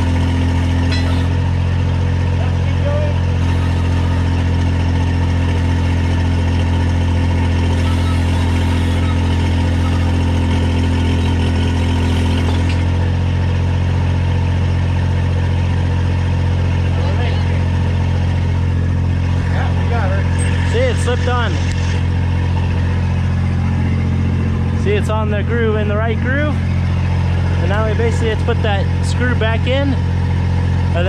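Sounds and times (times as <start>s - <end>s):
hydraulic drive motor: 0.0s - 2.0s, 3.1s - 13.2s
diesel engine running: 0.0s - 31.0s.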